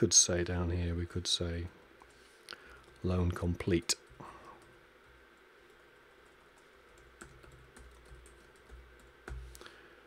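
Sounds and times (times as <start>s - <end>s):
faint keyboard typing: 2.0s - 9.8s.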